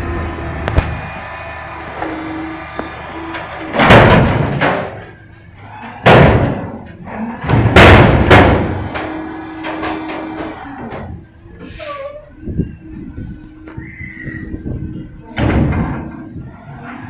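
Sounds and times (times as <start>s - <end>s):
truck whine: 0.0s - 17.0s
garbage can banging: 3.3s - 5.1s, 7.4s - 11.1s.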